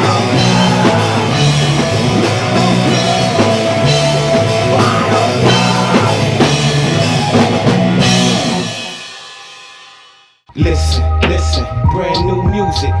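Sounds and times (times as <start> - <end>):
bass guitar: 0.0 - 9.1, 10.5 - 13.0
distorted electric guitar: 0.0 - 9.3
drum kit beat: 0.0 - 13.0.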